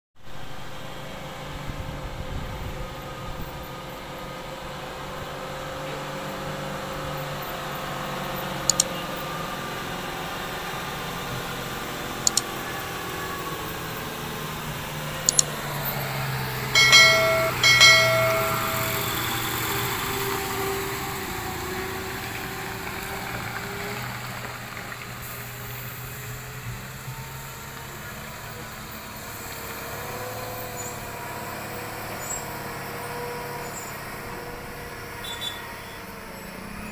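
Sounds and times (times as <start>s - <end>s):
diesel lorry engine drone: 0.2s - 36.9s
sharp double clicks: 8.7s - 8.9s, 12.2s - 12.5s, 15.3s - 15.5s
lorry horn blasts: 16.8s - 20.1s.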